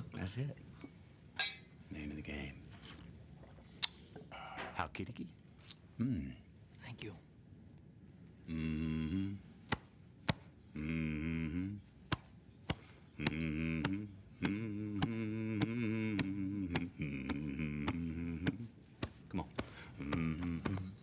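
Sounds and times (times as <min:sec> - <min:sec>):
man humming a low chant: 0:08.4 - 0:09.6, 0:10.6 - 0:12.0, 0:13.1 - 0:21.0.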